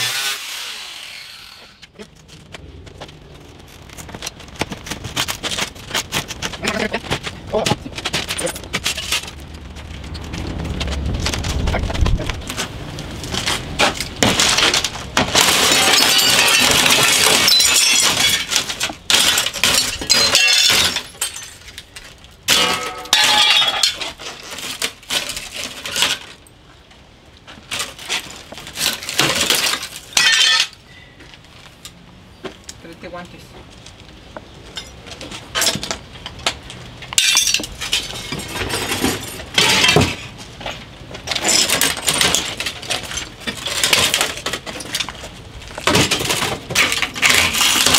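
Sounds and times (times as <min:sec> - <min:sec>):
glass shattering: 0:14.2 - 0:21.8, 0:22.5 - 0:24.1, 0:29.1 - 0:30.8, 0:37.2 - 0:40.2.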